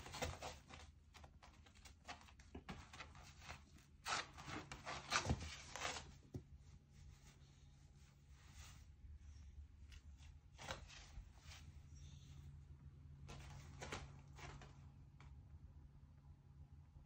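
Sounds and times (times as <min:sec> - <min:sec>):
dog claws scraping floor mat: 0:00.0 - 0:06.4.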